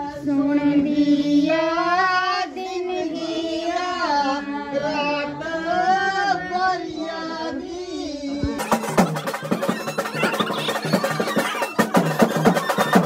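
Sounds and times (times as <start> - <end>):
fast drumming: 8.6 - 13.0.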